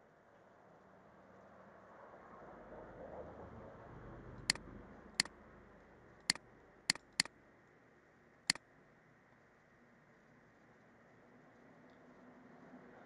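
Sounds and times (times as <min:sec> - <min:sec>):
computer mouse button clicking: 0:06.2 - 0:07.3.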